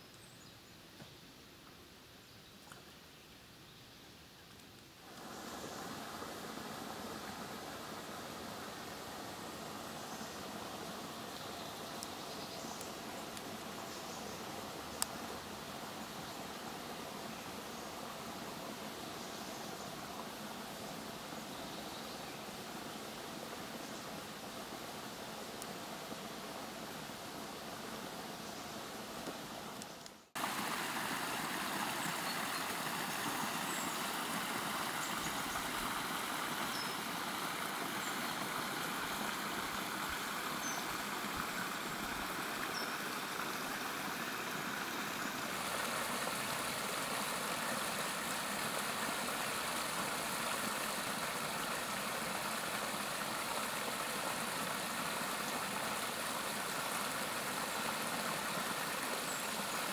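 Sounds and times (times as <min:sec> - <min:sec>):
brook rushing over stones: 0:29.0 - 0:59.9.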